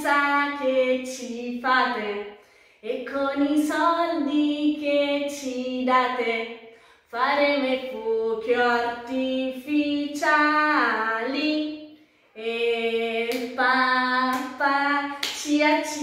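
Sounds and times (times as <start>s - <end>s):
woman singing: 0.0s - 16.0s
hand claps: 13.3s - 13.6s, 14.2s - 16.0s.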